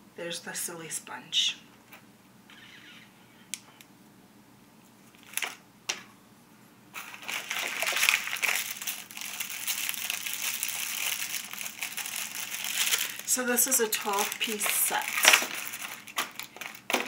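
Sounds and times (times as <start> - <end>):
packaging crinkling and rustling: 5.1 - 5.6, 7.0 - 17.0.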